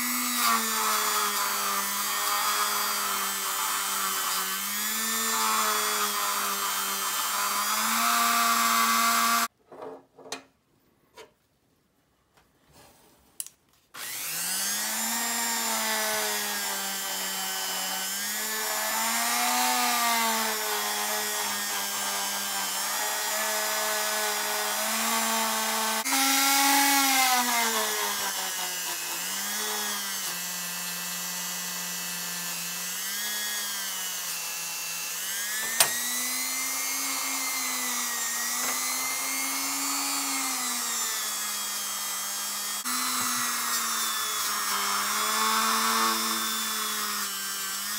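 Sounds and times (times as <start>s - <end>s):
rotary tool polishing whine: 14.0s - 47.9s.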